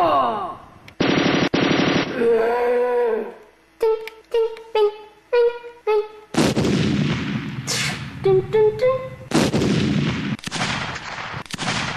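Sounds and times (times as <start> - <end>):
rapid gunshots: 1.0 - 2.2, 6.4 - 8.1, 9.3 - 11.9
explosion blasts: 6.4 - 8.2, 9.3 - 11.9.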